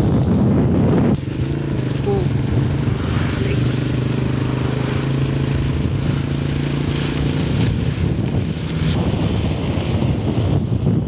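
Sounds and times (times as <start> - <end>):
motorcycle engine running: 0.0 - 11.0
wind noise on microphone: 0.0 - 11.0.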